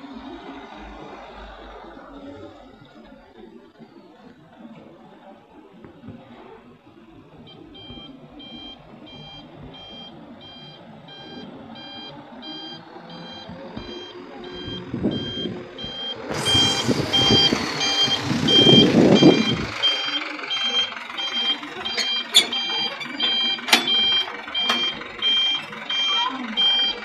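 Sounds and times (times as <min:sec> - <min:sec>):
truck engine rumble: 0:00.0 - 0:27.0
truck reversing alarm beeping: 0:06.8 - 0:27.0.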